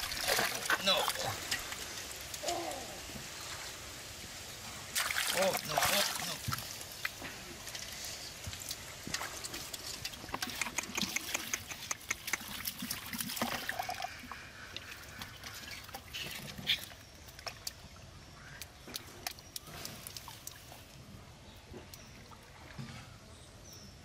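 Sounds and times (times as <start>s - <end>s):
hands squelching through wet mud: 4.9s - 14.2s, 14.8s - 21.1s
sharp wet click: 10.3s - 12.9s.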